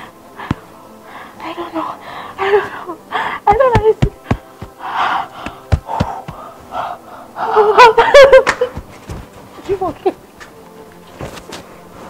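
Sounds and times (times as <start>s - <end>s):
sharp smacks: 8.4s - 9.2s.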